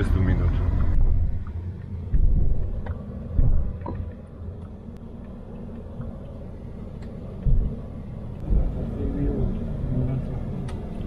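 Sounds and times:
low thumps: 0.0s - 9.7s
car road and engine rumble: 0.0s - 11.0s.

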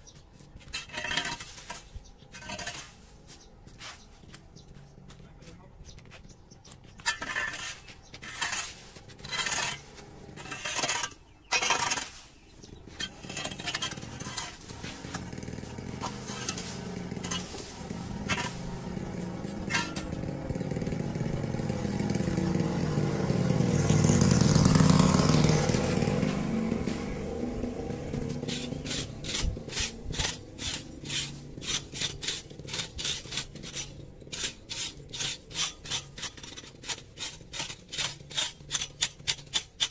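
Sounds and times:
rake scraping leaves on concrete: 0.0s - 4.8s, 5.9s - 39.9s
hand rake scraping metal grate: 0.1s - 4.4s, 5.9s - 21.9s, 24.6s - 39.9s
passing vehicle: 14.1s - 31.8s.

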